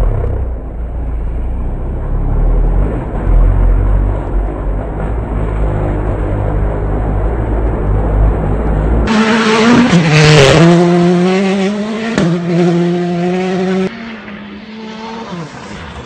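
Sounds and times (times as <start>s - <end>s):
gravel and tyre noise: 0.0s - 16.0s
rally car engine pulling hard: 8.4s - 16.0s.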